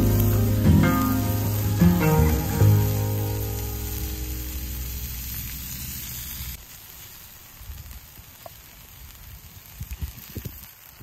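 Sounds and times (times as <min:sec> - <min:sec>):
background music: 0:00.0 - 0:05.2
faint fire crackles: 0:00.0 - 0:11.0
patties sizzling on griddle: 0:00.0 - 0:11.0.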